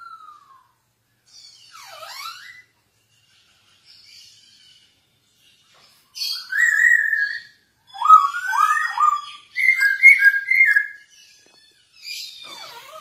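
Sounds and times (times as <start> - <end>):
bird singing whistled phrases: 0.0 - 0.9, 6.2 - 11.1.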